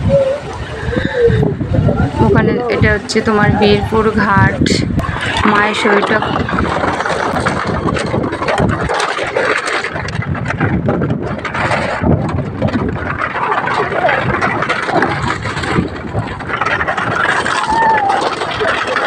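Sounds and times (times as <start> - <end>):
bamboo deck clattering: 5.0 - 19.0.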